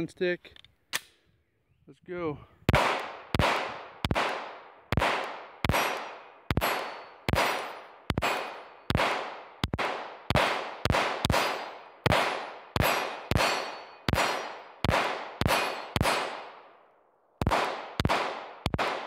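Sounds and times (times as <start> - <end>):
pistol shots with echo: 2.7 - 16.8, 17.4 - 19.0
steel plate ringing: 6.6 - 8.6, 12.8 - 14.7, 15.4 - 16.3.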